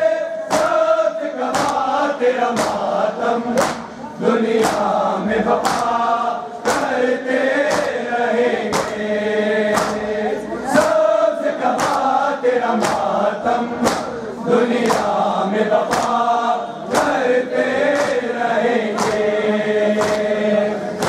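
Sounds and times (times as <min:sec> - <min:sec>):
men chanting in unison: 0:00.0 - 0:21.0
chest beating slaps: 0:00.4 - 0:00.9, 0:01.5 - 0:04.0, 0:04.6 - 0:05.0, 0:05.6 - 0:07.0, 0:07.6 - 0:08.0, 0:08.6 - 0:09.1, 0:09.7 - 0:10.1, 0:10.7 - 0:11.0, 0:11.7 - 0:12.2, 0:12.8 - 0:15.2, 0:15.8 - 0:16.3, 0:16.9 - 0:17.2, 0:17.9 - 0:18.3, 0:18.9 - 0:19.3, 0:20.0 - 0:20.4.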